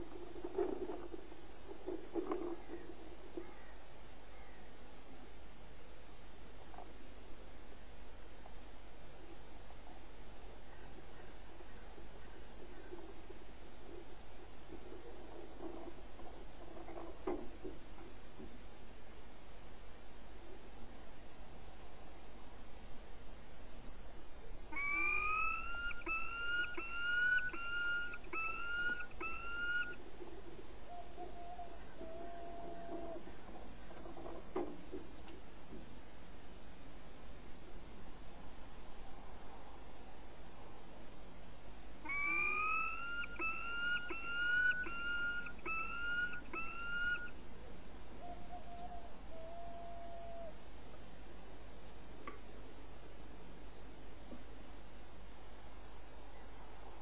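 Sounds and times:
falcon calling: 24.7s - 30.0s, 42.0s - 47.4s.

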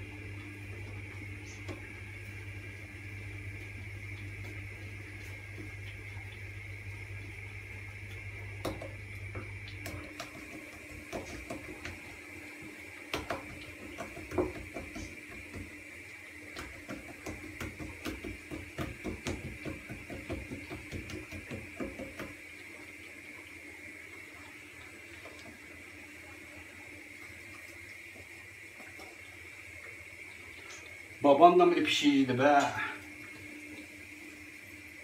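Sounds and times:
fingers patting dough: 9.8s - 12.1s, 13.1s - 15.8s, 16.5s - 22.4s.

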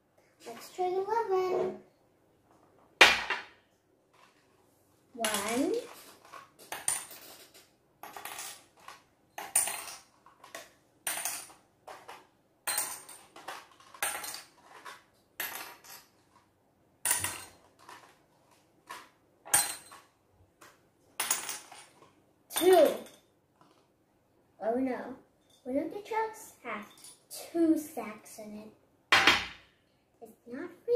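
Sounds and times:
objects clinking into glass jars: 5.2s - 16.4s, 17.0s - 18.2s, 18.9s - 20.1s, 21.2s - 23.3s, 26.7s - 27.3s.

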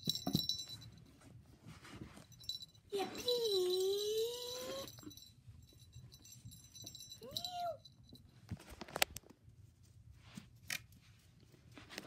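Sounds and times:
plush toys rustling on carpet: 1.1s - 2.6s, 8.4s - 12.0s.

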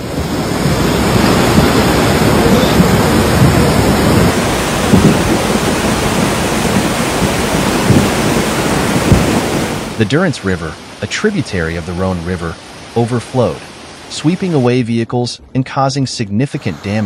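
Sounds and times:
flood torrent rushing: 0.0s - 17.0s.

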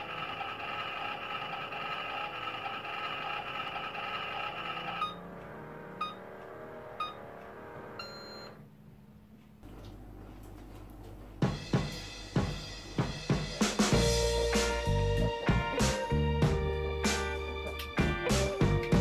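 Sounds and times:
toy microwave electronic hum: 0.0s - 8.6s
toy microwave beeps: 4.4s - 5.3s, 6.0s - 6.3s, 7.0s - 7.3s, 8.0s - 8.6s.

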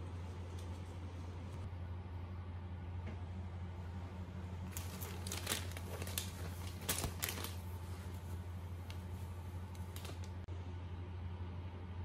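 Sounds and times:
steady low hum: 0.0s - 12.0s
rustling fabric and plastic wrapping: 4.6s - 10.5s.

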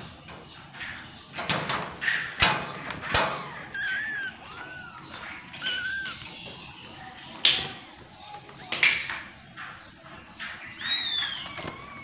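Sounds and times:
sharp knocks and clatters: 0.2s - 3.7s
kittens mewing: 3.1s - 8.2s.

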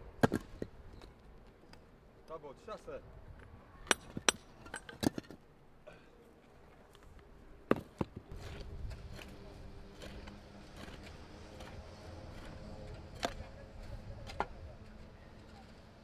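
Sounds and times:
stones knocking together: 7.7s - 8.6s.

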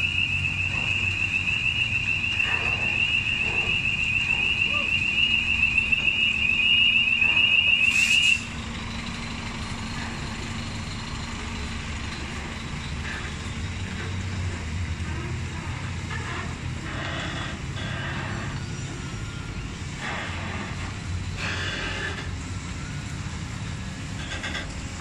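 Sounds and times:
diesel engine rumble: 0.0s - 25.0s
truck reversing alarm: 0.0s - 25.0s.

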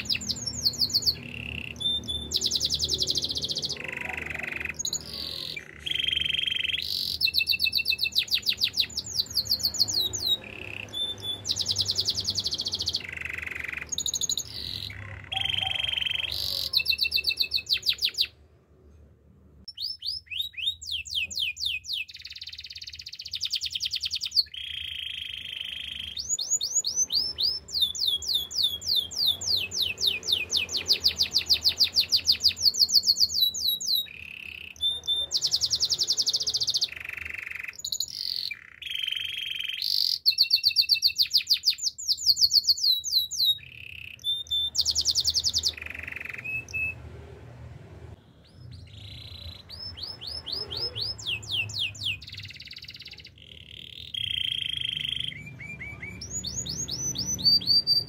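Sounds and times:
canary singing trills: 0.0s - 18.5s, 19.7s - 47.1s, 48.2s - 58.0s.

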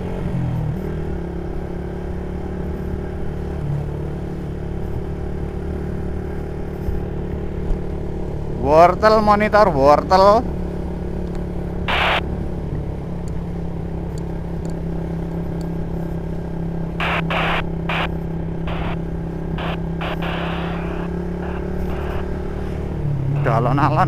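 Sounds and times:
motorcycle engine cruising: 0.0s - 24.0s.

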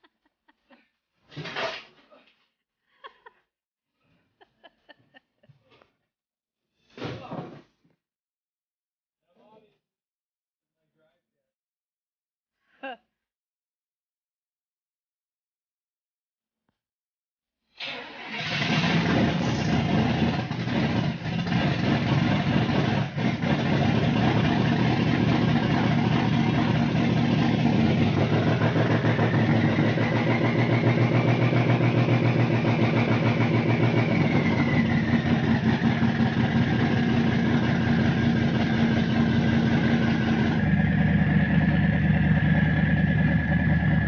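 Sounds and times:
engine idling unevenly: 18.8s - 44.0s.

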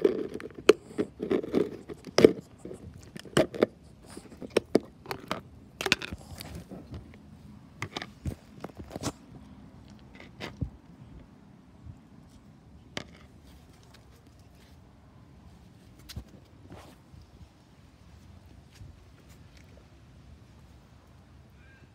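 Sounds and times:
plastic tub tapping and scraping: 0.0s - 7.2s.

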